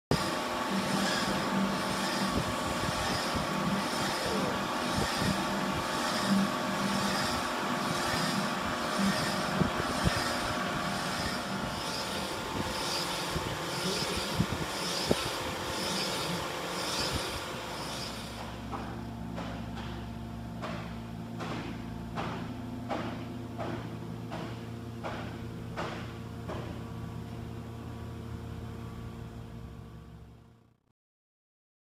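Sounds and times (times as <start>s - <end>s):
boring machine humming: 0.1s - 30.6s
sharp machine ticks: 0.8s - 10.4s, 11.0s - 18.5s.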